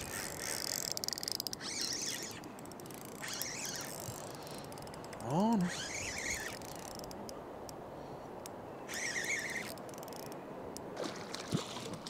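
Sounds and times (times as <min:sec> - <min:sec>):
fishing reel whirring: 0:00.0 - 0:07.2, 0:08.9 - 0:10.4
river flowing: 0:00.0 - 0:12.0
wind: 0:00.0 - 0:12.0.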